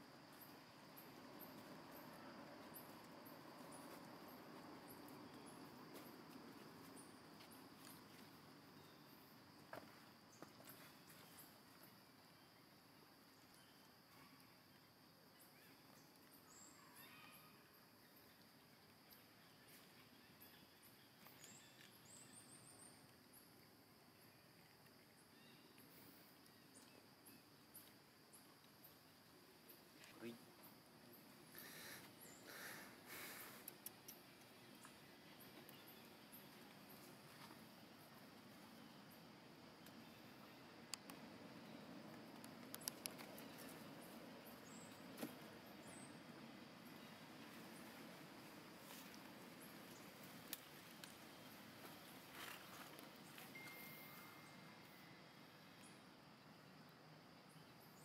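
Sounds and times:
insect chirps: 0:00.0 - 0:58.0
steady high insect hum: 0:00.0 - 0:58.0
faint clicks: 0:40.9 - 0:41.2, 0:42.3 - 0:43.8, 0:50.4 - 0:51.2.

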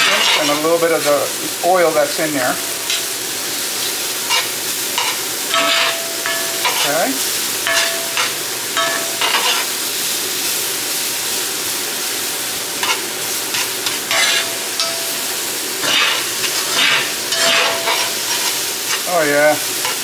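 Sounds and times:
utensil scraping a pan: 0:00.0 - 0:01.3, 0:04.2 - 0:07.1, 0:07.7 - 0:09.7, 0:12.8 - 0:15.2, 0:15.8 - 0:19.2
mushrooms sizzling in oil: 0:00.0 - 0:20.0.

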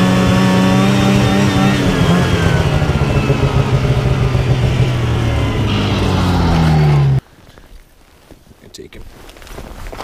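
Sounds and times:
snowmobile engine running: 0:00.0 - 0:07.2.

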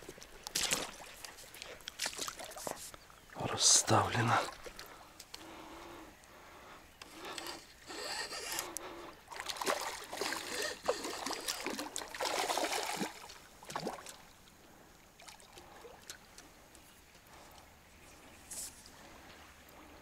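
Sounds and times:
water splashing: 0:00.0 - 0:05.1, 0:09.3 - 0:14.3.

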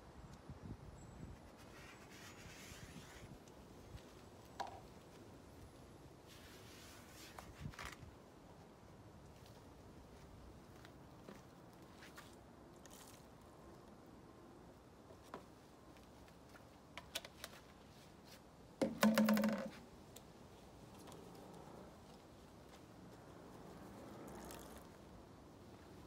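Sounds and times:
plastic tub clicks on wooden table: 0:18.8 - 0:19.7.

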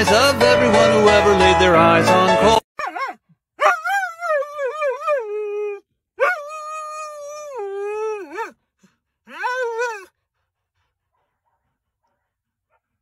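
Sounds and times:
dog howling: 0:02.8 - 0:08.6, 0:09.3 - 0:10.2.

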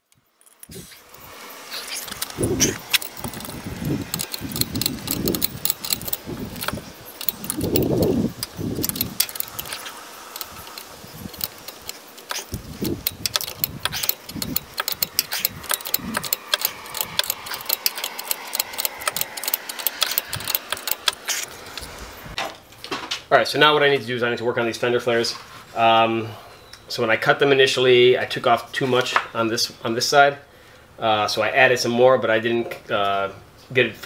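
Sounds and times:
metal tools clinking: 0:01.7 - 0:21.8.

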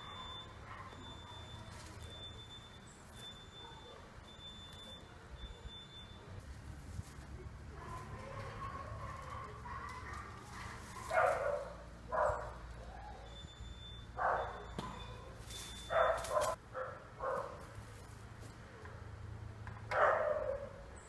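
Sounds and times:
dog barking: 0:00.0 - 0:01.2, 0:07.8 - 0:13.3, 0:14.1 - 0:14.8, 0:15.9 - 0:17.6, 0:19.9 - 0:20.8.

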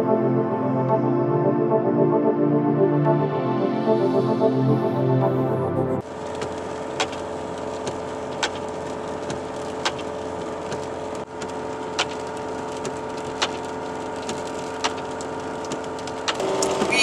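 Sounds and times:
car engine and tyre drone: 0:06.0 - 0:17.0.

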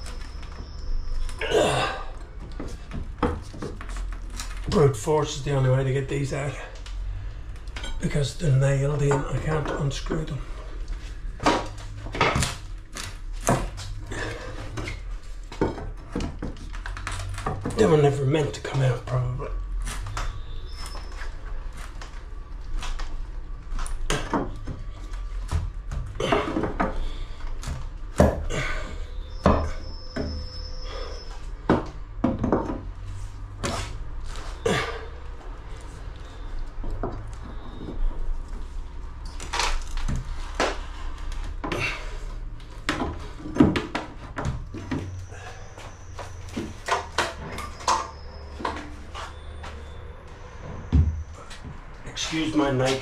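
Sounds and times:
wooden knocks and bangs: 0:02.3 - 0:05.0, 0:11.3 - 0:18.1, 0:24.0 - 0:28.8, 0:29.4 - 0:30.5, 0:31.6 - 0:33.9, 0:42.7 - 0:49.8, 0:50.6 - 0:51.9.

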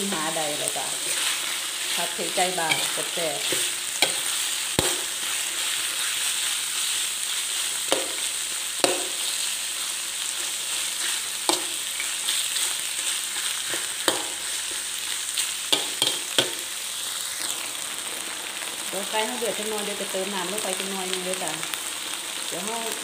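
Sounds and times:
chicken sizzling in a wok: 0:00.0 - 0:23.0
metal spatula scraping a wok: 0:00.1 - 0:16.7.

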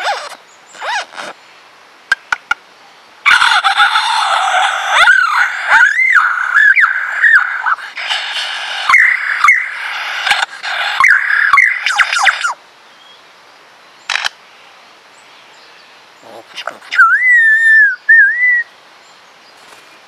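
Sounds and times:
sharp clicks: 0:14.1 - 0:14.4
bird singing whistled sweeps: 0:17.0 - 0:18.8.

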